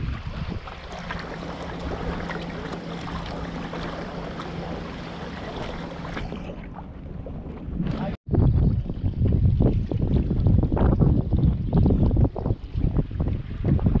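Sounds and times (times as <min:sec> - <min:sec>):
water splashing along wooden hull: 0:00.0 - 0:14.0.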